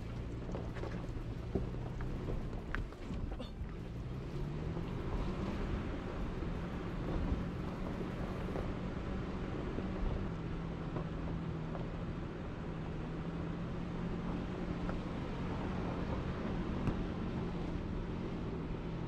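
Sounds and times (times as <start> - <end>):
tyres rumbling on gravel: 0.0 - 8.7
vehicle engine humming: 0.0 - 19.0.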